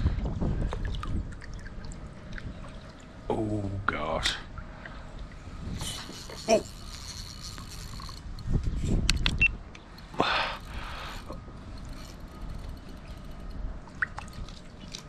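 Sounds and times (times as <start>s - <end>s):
sharp clicks: 9.0s - 9.9s.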